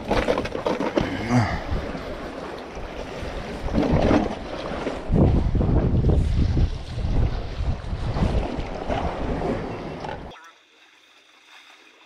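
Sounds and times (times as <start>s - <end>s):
wind buffeting microphone: 1.0s - 10.3s.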